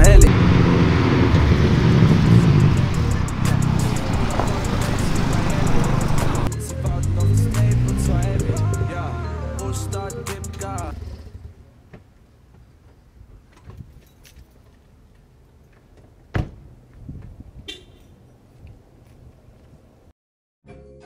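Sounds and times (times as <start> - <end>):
background music: 2.7 - 11.1, 20.7 - 21.0
car door slam: 16.3 - 16.7.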